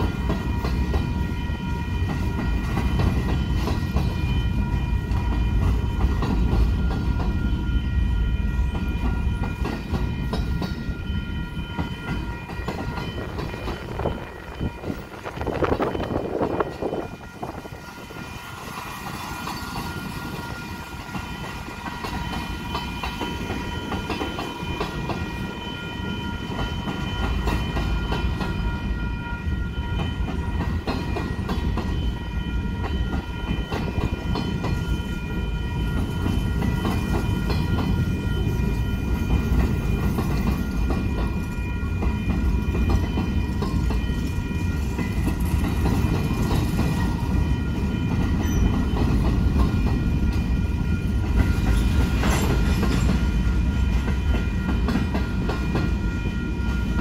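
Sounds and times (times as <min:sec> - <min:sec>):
steady high ringing tone: 0:00.0 - 0:57.0
train wheels clacking over rail joints: 0:42.0 - 0:57.0.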